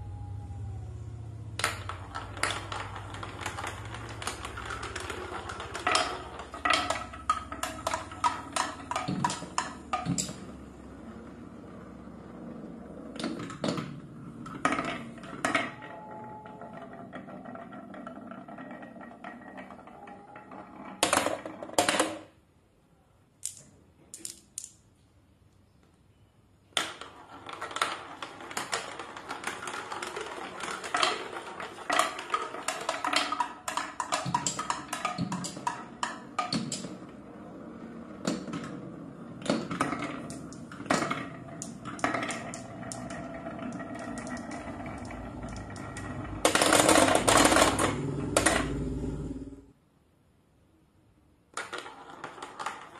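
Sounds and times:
marbles clicking together: 1.6s - 10.4s, 23.4s - 24.8s, 39.6s - 48.8s
marbles rolling on wooden track: 1.6s - 22.4s, 26.8s - 49.6s, 51.5s - 52.9s.

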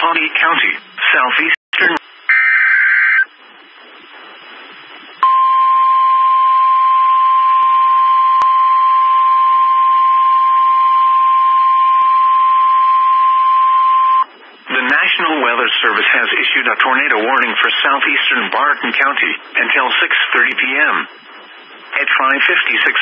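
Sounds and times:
faint radio hiss: 0.0s - 23.0s
steady high alarm beep: 5.2s - 14.3s.

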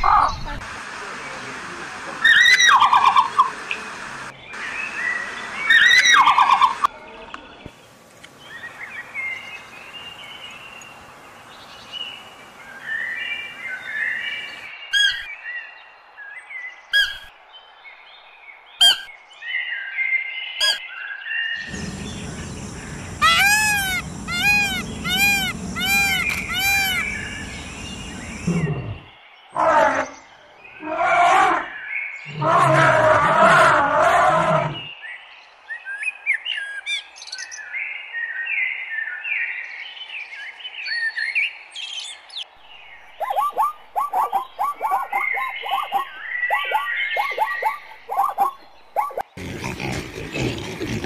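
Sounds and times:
bird calls and chirps: 8.4s - 29.4s, 34.8s - 50.8s
repeated arching bird notes: 21.6s - 29.1s.

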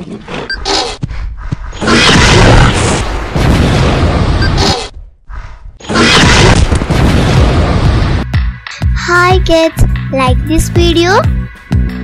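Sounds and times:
booming crashes and rumbling: 1.8s - 4.6s, 5.8s - 8.3s.

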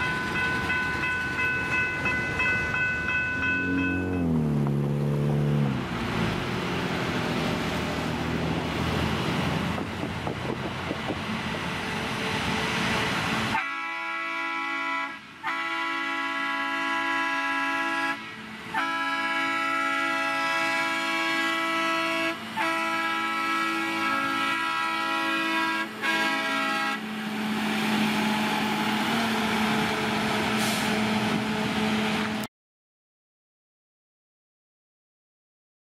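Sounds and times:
track machines rolling on rails: 0.0s - 13.6s, 17.7s - 32.5s
track machine horn blasts: 13.6s - 18.2s, 18.8s - 27.0s.

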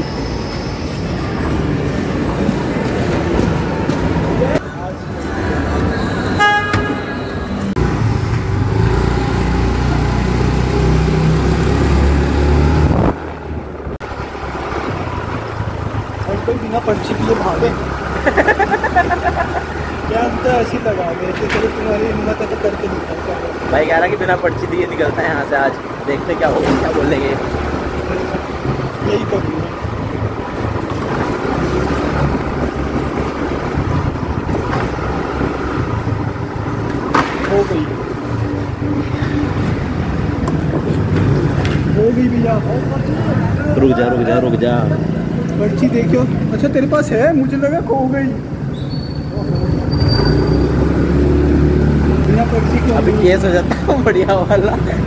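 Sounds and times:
motorbike engine and road noise: 0.0s - 55.0s
scooter engine running: 7.8s - 12.7s.

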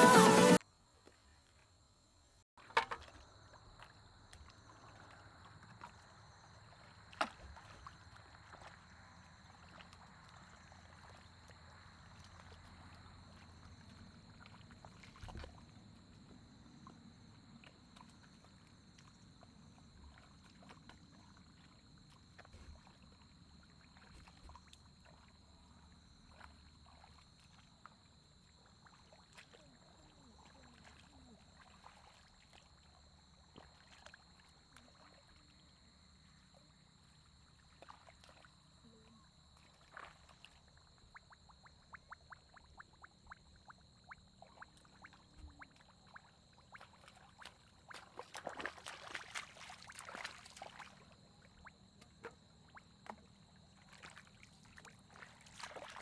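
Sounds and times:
faint steady high tone: 0.0s - 0.6s
splashing in shallow muddy water: 2.6s - 56.0s.

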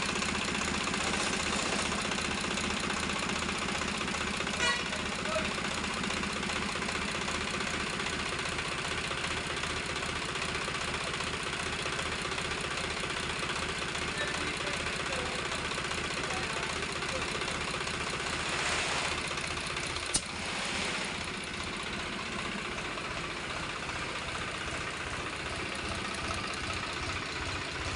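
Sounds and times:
tractor diesel engine idling: 0.0s - 27.9s.

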